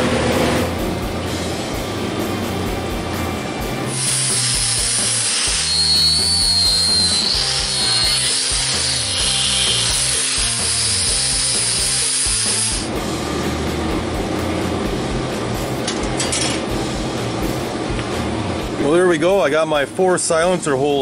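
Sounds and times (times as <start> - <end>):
high wavering whine: 0.0 - 17.4
background music with bass line: 0.0 - 19.0
power tool grinding metal: 3.9 - 12.9.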